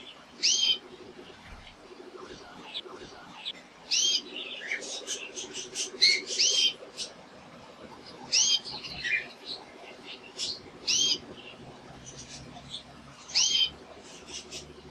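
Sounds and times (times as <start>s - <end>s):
canary chirping: 0.4s - 0.8s, 3.9s - 7.2s, 8.2s - 14.8s.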